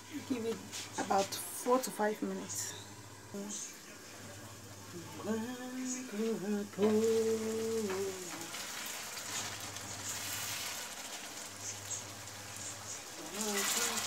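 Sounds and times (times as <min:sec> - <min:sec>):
sauce sizzling in a frying pan: 0:00.0 - 0:14.0
person humming: 0:05.0 - 0:08.5.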